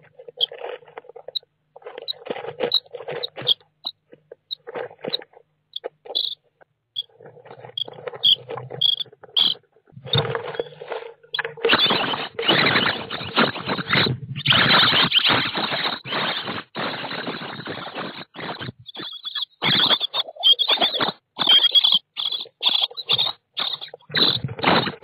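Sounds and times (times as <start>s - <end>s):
chicks scratching and rustling: 0.0s - 25.0s
nestlings begging calls: 6.1s - 6.4s, 7.7s - 9.6s, 11.7s - 24.4s.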